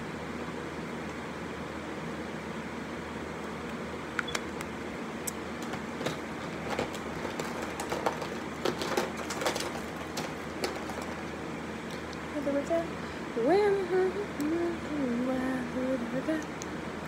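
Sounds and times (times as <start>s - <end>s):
steady background hum: 0.0s - 17.0s
makeup items clicking and knocking: 5.6s - 11.3s.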